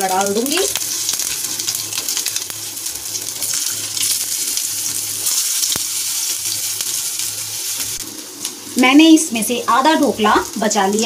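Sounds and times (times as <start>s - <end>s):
oil sizzling in frying pan: 0.0s - 11.0s.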